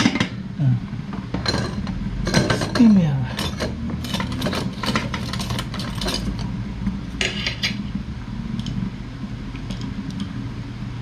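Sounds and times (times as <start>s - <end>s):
steady low hum: 0.0s - 11.0s
dishes and utensils clinking: 1.4s - 6.4s, 7.2s - 7.8s.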